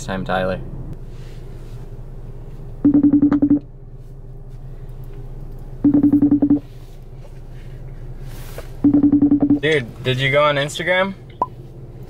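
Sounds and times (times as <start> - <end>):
phone ringing tone beeps: 2.8 - 3.6, 5.8 - 6.6, 8.8 - 9.6.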